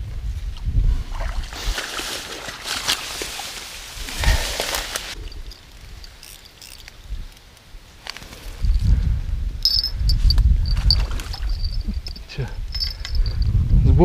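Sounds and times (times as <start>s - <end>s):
crickets chirping: 4.2s - 13.6s.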